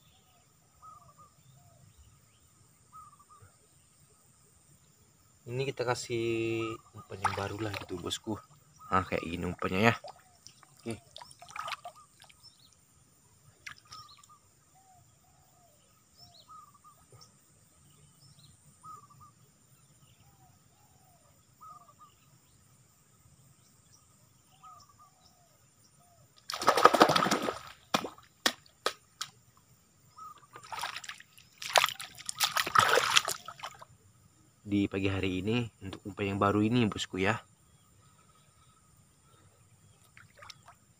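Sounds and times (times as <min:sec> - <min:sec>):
water splashing from wading: 0:07.0 - 0:08.2, 0:09.5 - 0:12.5, 0:26.5 - 0:29.3, 0:30.4 - 0:33.9, 0:40.0 - 0:40.9.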